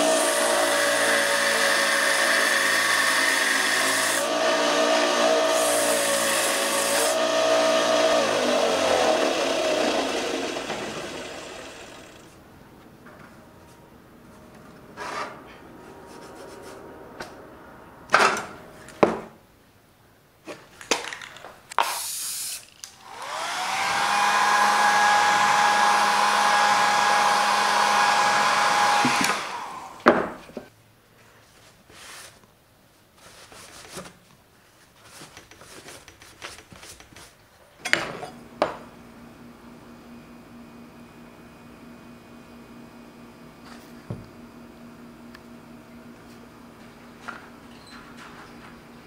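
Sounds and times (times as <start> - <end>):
power tool motor running: 0.0 - 12.4, 23.0 - 30.0
hiss of air: 21.8 - 22.7.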